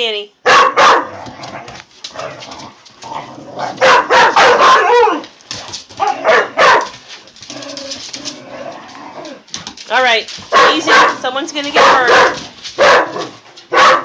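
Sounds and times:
dogs barking and yipping: 0:00.4 - 0:01.9, 0:02.7 - 0:08.4, 0:10.4 - 0:14.0.

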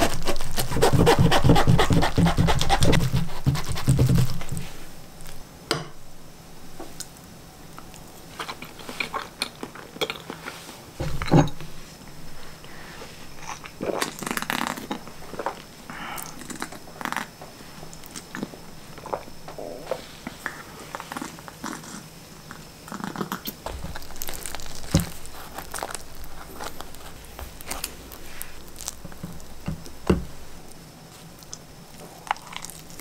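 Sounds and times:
chewing: 0:07.8 - 0:10.7, 0:20.4 - 0:29.5, 0:31.4 - 0:33.0.

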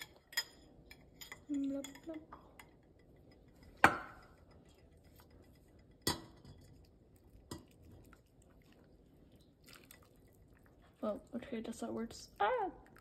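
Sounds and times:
water trickling: 0:07.8 - 0:13.0.

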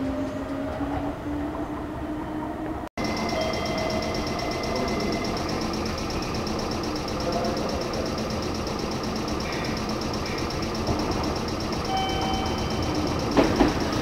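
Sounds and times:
faint high pulsing tone: 0:03.0 - 0:14.0
steady mechanical running noise: 0:03.0 - 0:14.0.

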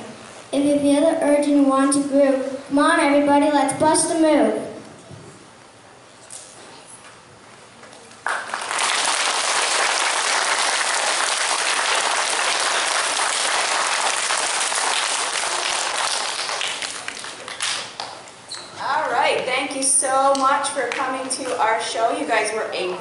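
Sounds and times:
audience applauding: 0:08.2 - 0:18.2.

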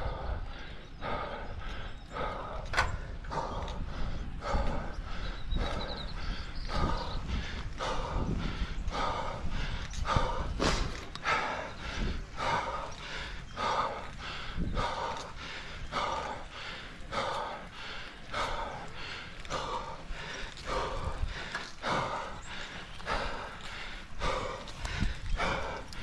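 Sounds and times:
person breathing hard: 0:00.0 - 0:26.0.

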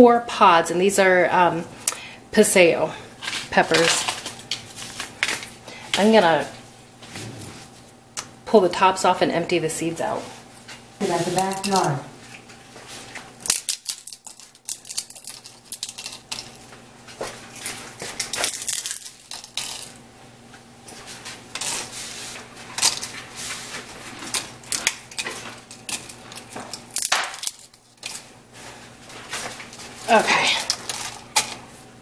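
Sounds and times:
dried chili pods crackling: 0:11.0 - 0:12.0, 0:13.3 - 0:20.0, 0:21.5 - 0:31.7
pieces dropping into steel cup: 0:13.4 - 0:16.6, 0:18.2 - 0:20.0.

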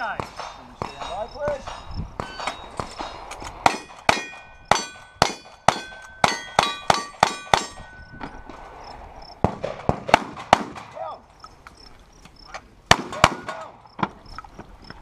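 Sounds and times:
steel target clanging: 0:00.0 - 0:08.6
rapid gunshots: 0:09.4 - 0:11.0, 0:12.9 - 0:13.7.

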